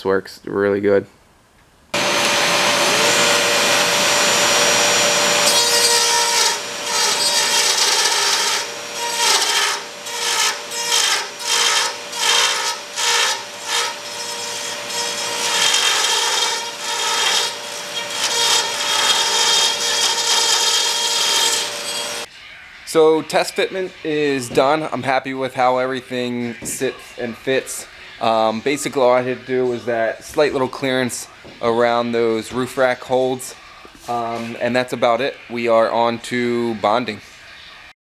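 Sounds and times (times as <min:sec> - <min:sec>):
vacuum hose drawing air: 0:02.0 - 0:05.5
rotary tool running at high speed: 0:02.0 - 0:22.3.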